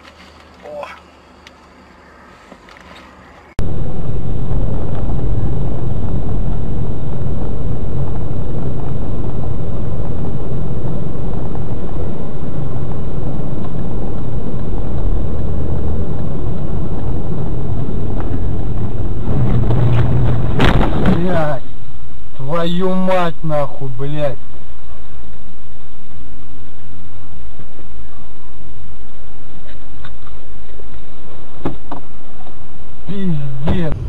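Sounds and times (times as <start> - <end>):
vehicle rumbling in motion: 0.0 - 34.0.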